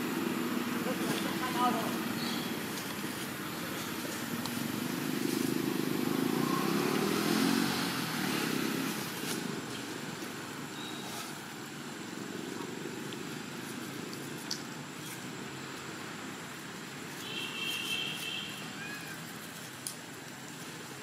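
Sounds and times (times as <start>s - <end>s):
vehicle engine passing: 0.0s - 14.4s.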